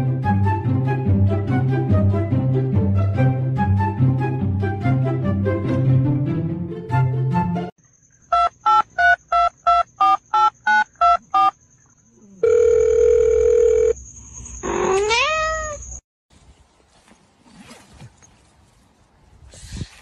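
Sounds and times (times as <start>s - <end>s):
telephone keypad beeps: 8.3s - 11.5s
steady dial tone: 12.4s - 14.0s
cat meowing: 14.8s - 15.9s.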